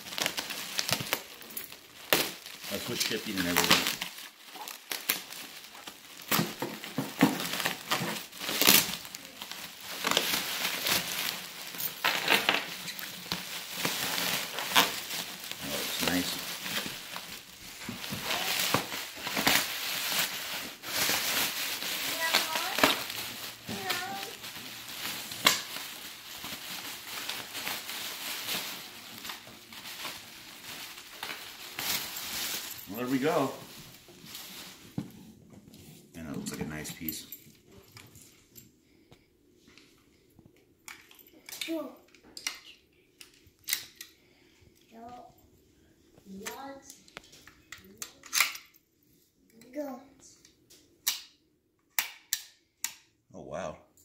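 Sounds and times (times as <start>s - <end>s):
bubble wrap crinkling: 0.0s - 38.4s.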